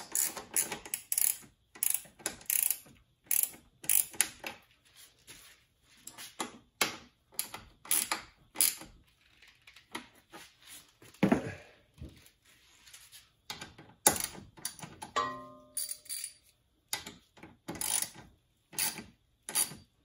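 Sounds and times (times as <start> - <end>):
ratchet wrench clicking: 0.0 - 4.5, 7.4 - 9.8, 15.8 - 19.9.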